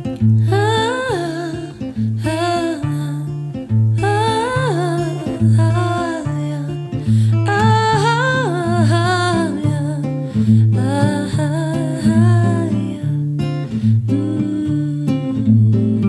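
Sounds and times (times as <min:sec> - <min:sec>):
acoustic guitar: 0:00.0 - 0:16.0
woman singing: 0:00.0 - 0:16.0.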